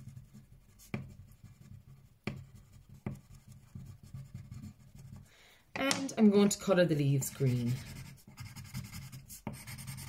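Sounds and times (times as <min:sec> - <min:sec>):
crayon tapping on paper: 0:02.2 - 0:06.6
crayon rubbing on paper: 0:07.3 - 0:10.0.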